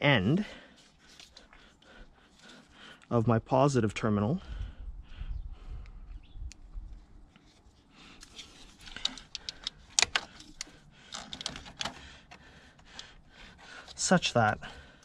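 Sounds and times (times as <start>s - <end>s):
small clicks and rattles of terminal: 8.2s - 13.2s.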